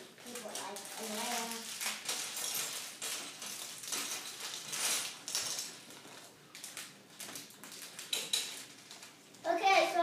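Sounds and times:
plastic bags rustling: 0:00.0 - 0:10.0
plastic pieces clicking: 0:06.5 - 0:09.1.

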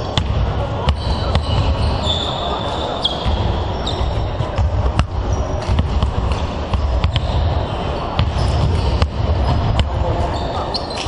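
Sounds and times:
sports hall din: 0:00.0 - 0:11.0
basketballs bouncing on hardwood: 0:00.2 - 0:01.9, 0:04.1 - 0:07.5.

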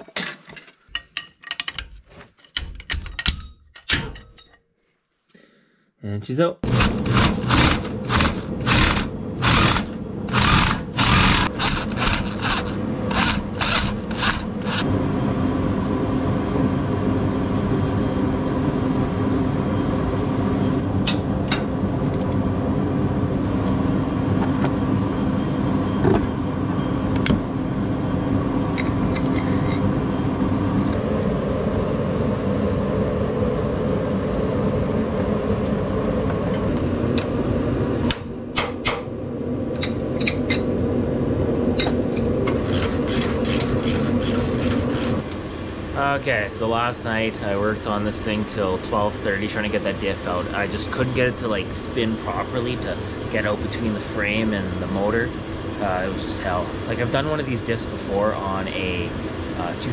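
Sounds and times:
heater humming: 0:06.6 - 0:59.9
hand tools clicking: 0:07.0 - 0:14.8
knocks and rubbing: 0:42.5 - 0:45.2.

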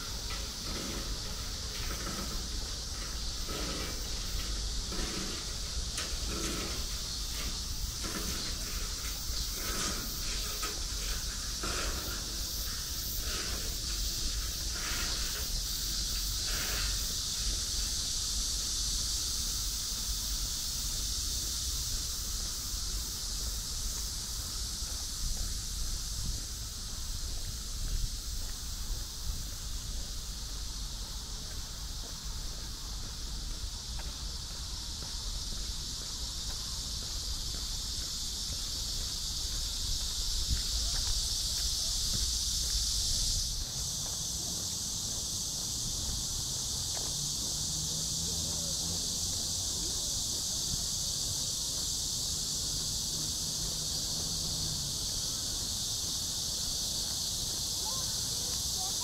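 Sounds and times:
insects chirring: 0:00.0 - 0:59.0
wind rumble on microphone: 0:24.5 - 0:31.0.

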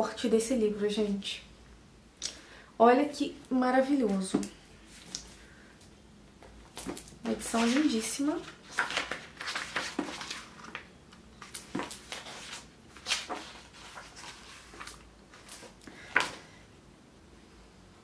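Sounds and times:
paper rustling and pages turning: 0:06.6 - 0:16.4.

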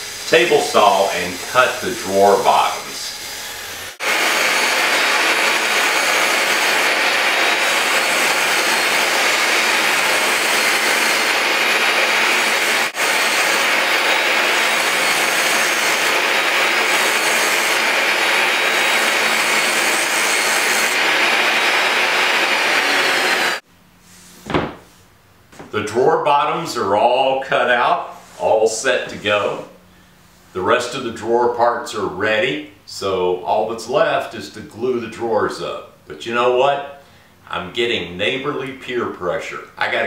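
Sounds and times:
table saw cutting hardboard: 0:00.0 - 0:23.6.

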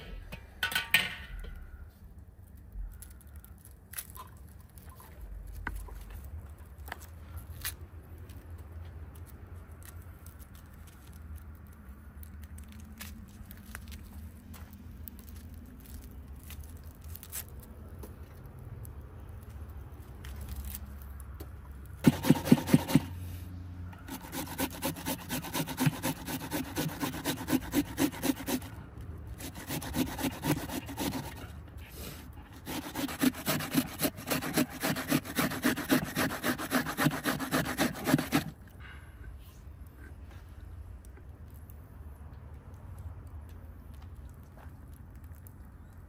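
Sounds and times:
rhythmic scraping strokes: 0:22.0 - 0:23.2, 0:24.1 - 0:28.7, 0:32.6 - 0:38.5.

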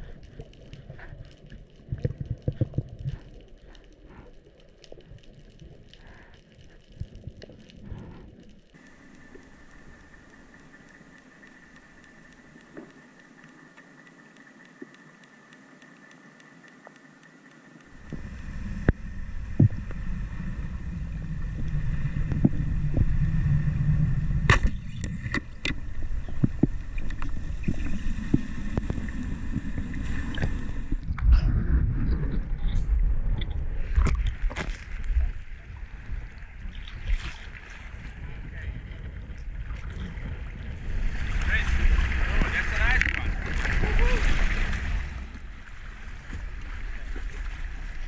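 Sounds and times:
sharp clicks and snaps: 0:00.0 - 0:18.2
faint underwater hiss: 0:00.0 - 0:31.6
rumbling wash of water: 0:17.9 - 0:48.0.

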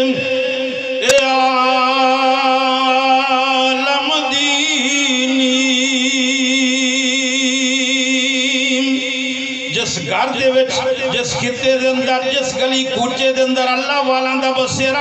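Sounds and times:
man chanting through a pa system: 0:00.0 - 0:15.0.

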